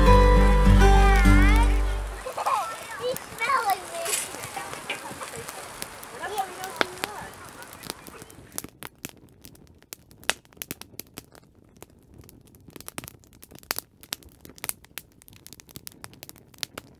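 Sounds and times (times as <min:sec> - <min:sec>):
low hiss: 0:00.0 - 0:08.8
fire popping and snapping: 0:00.0 - 0:16.9
wood fire crackling: 0:00.0 - 0:16.9.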